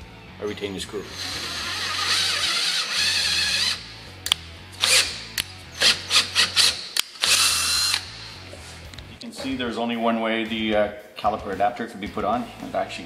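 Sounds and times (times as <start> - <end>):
drill whirring: 1.0 - 4.0, 4.8 - 8.4.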